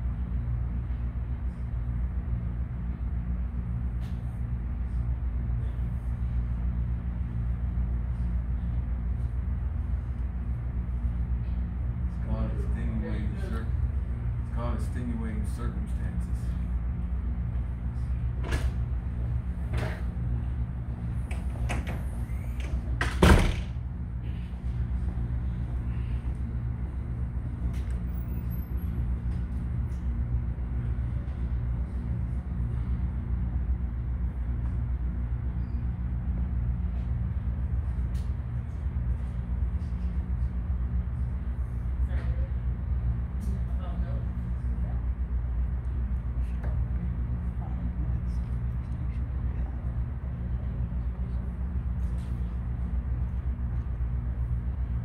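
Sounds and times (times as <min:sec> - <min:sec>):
low mechanical hum: 0:00.0 - 0:55.0
loud thump: 0:23.0 - 0:23.8.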